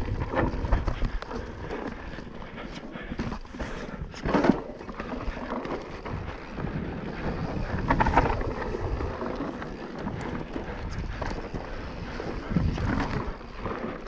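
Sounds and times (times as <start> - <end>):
wind noise on microphone: 0.0 - 2.1, 5.6 - 14.0
bike rattling over bumps: 0.0 - 14.0
bike tyres grinding over dirt: 0.0 - 14.0.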